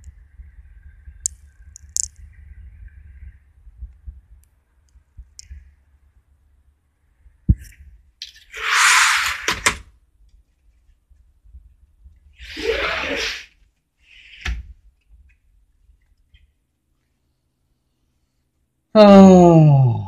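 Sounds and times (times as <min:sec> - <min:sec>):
wind rumble on microphone: 0:00.0 - 0:05.7.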